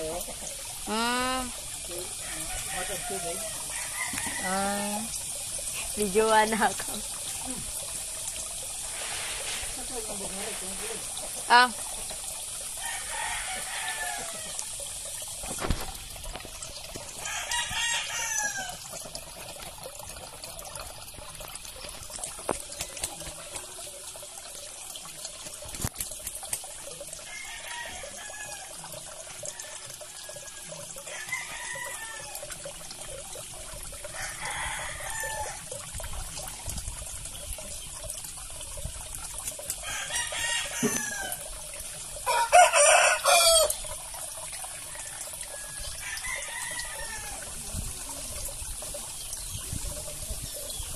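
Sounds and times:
water trickling into pond: 0.0 - 50.9
roosters crowing: 2.1 - 5.1, 12.7 - 14.8, 17.2 - 18.8, 27.2 - 28.8, 29.4 - 32.5, 34.1 - 35.7, 39.8 - 41.5, 42.2 - 43.8, 44.8 - 47.6.

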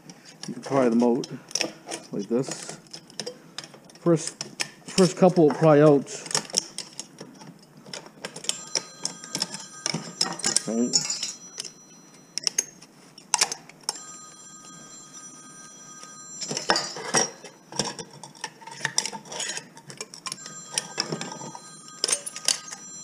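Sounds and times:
thin high ringing: 8.5 - 12.8, 13.9 - 18.1, 20.3 - 23.0.

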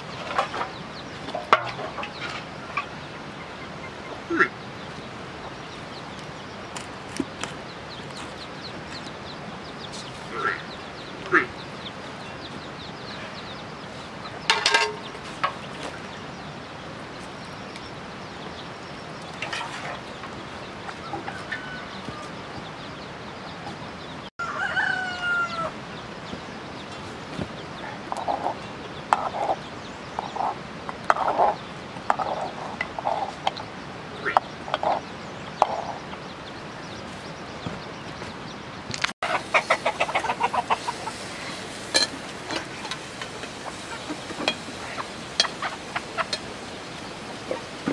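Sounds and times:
chickens clucking: 0.0 - 47.9
rooster crowing: 21.0 - 22.4, 24.4 - 25.8.

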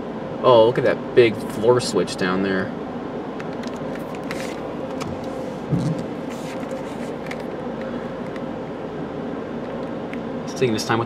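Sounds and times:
car wash dryer blowers: 3.9 - 11.0.

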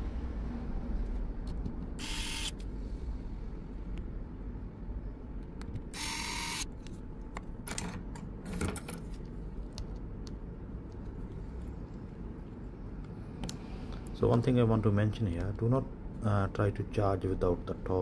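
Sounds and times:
low steady hum: 0.0 - 18.0
electric screwdriver whirring: 2.0 - 2.6, 6.0 - 6.7.

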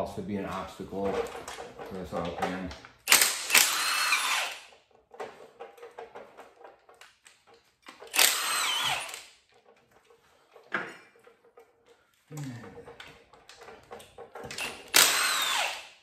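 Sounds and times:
power tool whining in bursts: 3.1 - 4.7, 8.1 - 9.3, 14.6 - 15.9.

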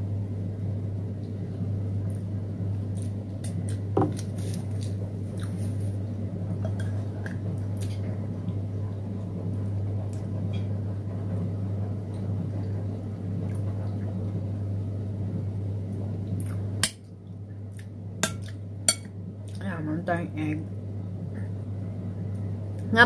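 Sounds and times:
steady low hum: 0.0 - 23.0
person chewing food: 2.9 - 5.8.

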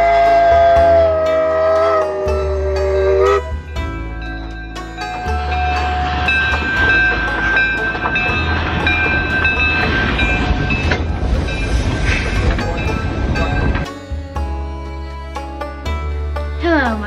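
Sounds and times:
train car rumbling on track: 0.0 - 13.9.

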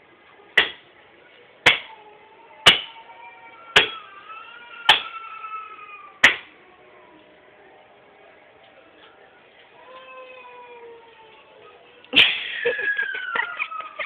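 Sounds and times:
axe chopping wood: 0.6 - 0.8, 1.7 - 1.9, 6.2 - 6.5.

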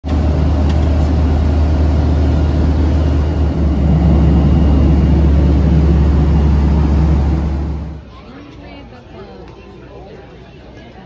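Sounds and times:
jet engine and airflow rumble: 0.0 - 8.1.

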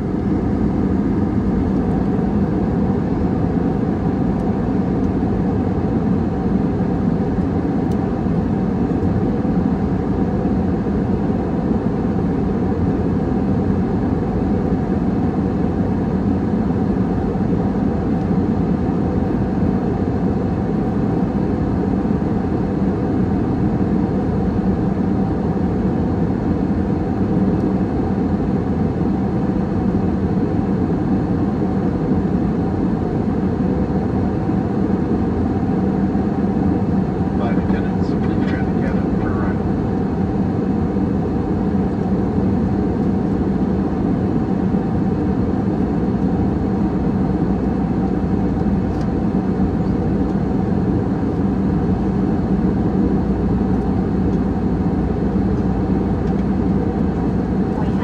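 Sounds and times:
jet engines rumbling: 0.0 - 14.7, 29.7 - 58.0
faint steady hum: 0.0 - 58.0.

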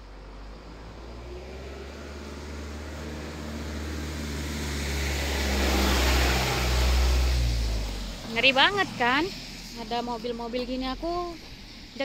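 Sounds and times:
car passing by: 0.0 - 12.0.

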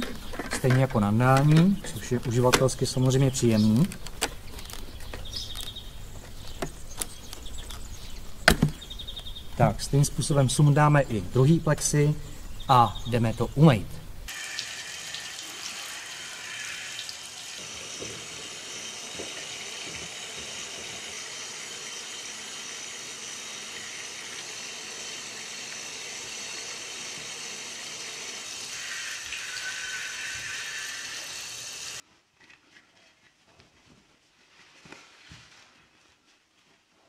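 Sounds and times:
shower water hissing on plastic: 14.3 - 32.0
towel rustling: 33.1 - 37.0.

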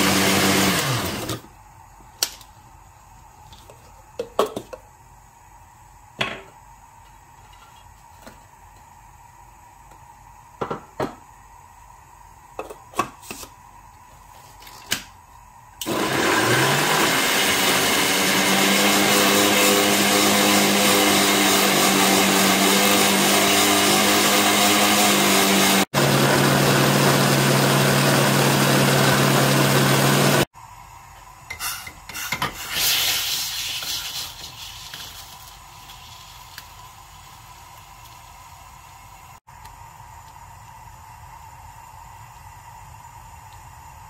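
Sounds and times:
food processor motor: 0.0 - 1.5, 15.8 - 30.5.

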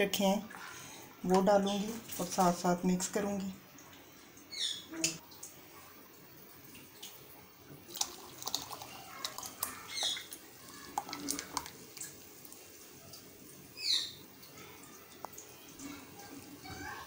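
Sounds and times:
milk splashing: 6.4 - 17.0.

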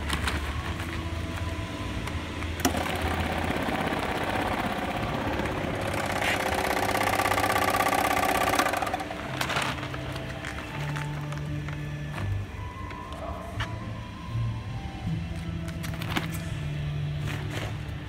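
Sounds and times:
sewing machine mechanical chatter: 2.6 - 9.8.

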